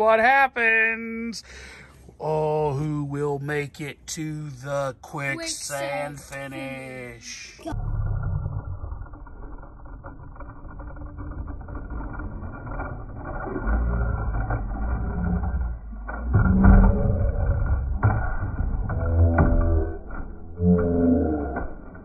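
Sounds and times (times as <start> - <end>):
toy trucks rolling on wooden board: 5.3 - 22.0.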